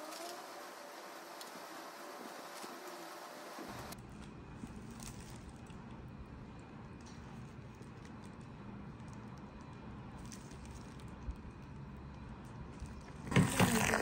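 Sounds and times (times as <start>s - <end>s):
electric whisk whirring: 0.0s - 4.0s, 13.2s - 14.0s.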